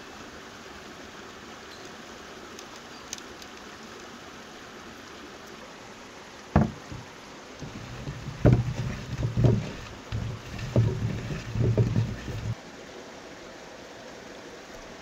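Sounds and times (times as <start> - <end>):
faint steady hiss: 0.0 - 15.0
potatoes knocking in wooden bowl: 6.6 - 7.0, 7.6 - 12.6
sharp knock: 6.6 - 7.0.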